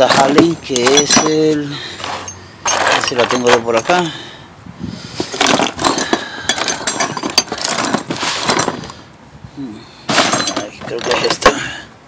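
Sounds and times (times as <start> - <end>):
metal tools clattering in a box: 0.0 - 4.1, 5.3 - 8.8, 10.1 - 11.7.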